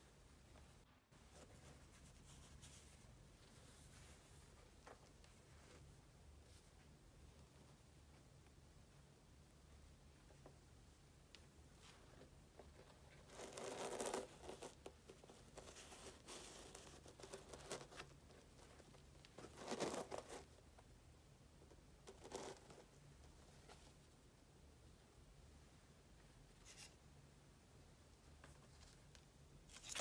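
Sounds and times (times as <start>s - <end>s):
gloves rustling against shoe: 0.1s - 9.3s, 11.5s - 20.9s, 21.6s - 24.2s.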